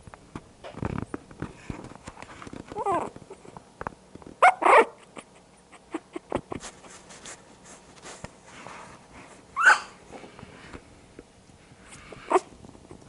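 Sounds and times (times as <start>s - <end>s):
clicks and bumps on camera: 0.0s - 4.4s
puppies yipping: 4.4s - 6.5s, 9.6s - 10.0s.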